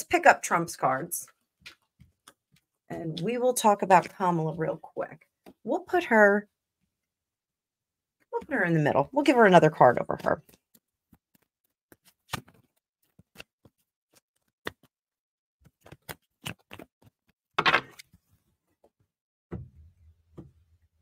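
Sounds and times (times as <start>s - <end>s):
cards clicking and tapping: 10.4s - 14.9s, 15.6s - 18.2s
cards rustling: 10.4s - 14.9s, 15.6s - 18.2s.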